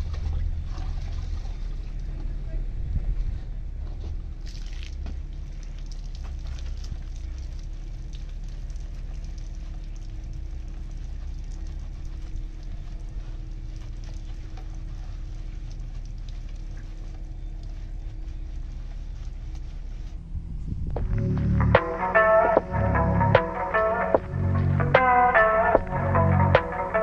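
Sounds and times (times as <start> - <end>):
low rumble and hum: 0.0 - 27.0
water dripping onto paving: 4.4 - 19.6
wash mitt rubbing wet car: 4.4 - 20.3.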